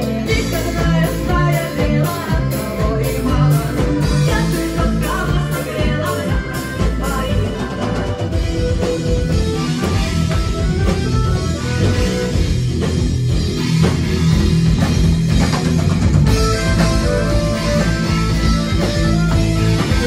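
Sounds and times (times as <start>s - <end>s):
bass guitar: 0.0s - 20.0s
drum kit: 0.0s - 20.0s
electric guitar: 0.0s - 20.0s.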